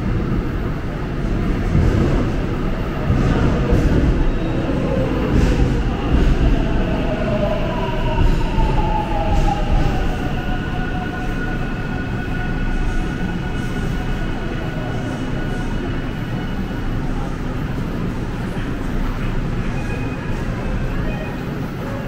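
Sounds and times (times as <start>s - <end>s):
subway train rumble: 0.0s - 22.0s.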